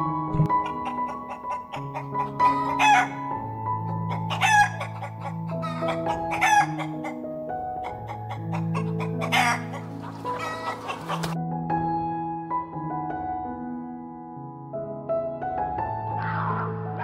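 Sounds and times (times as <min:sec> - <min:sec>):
background music: 0:00.0 - 0:17.0
hens clucking: 0:00.5 - 0:07.2, 0:07.8 - 0:11.4
drawn-out hen calls: 0:00.6 - 0:03.3, 0:03.9 - 0:07.2, 0:07.8 - 0:11.4.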